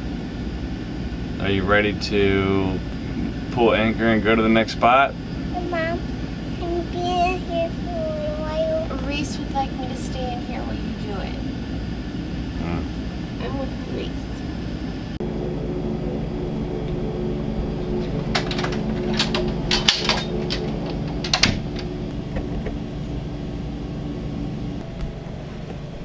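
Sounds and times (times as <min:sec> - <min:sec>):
low hum of held pitches: 0:00.0 - 0:26.0
sharp clicks and clatters: 0:18.0 - 0:22.8.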